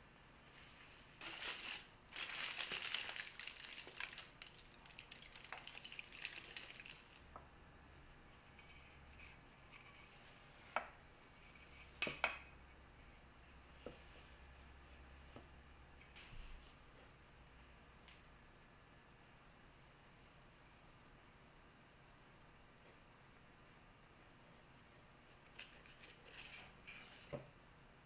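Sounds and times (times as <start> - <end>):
baking beads rattling: 1.2 - 7.2
foil crinkling: 1.2 - 7.2.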